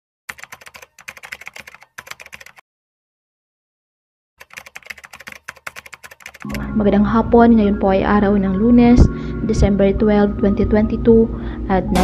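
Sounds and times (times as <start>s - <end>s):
keyboard typing clicks: 0.3s - 2.6s, 4.4s - 6.7s.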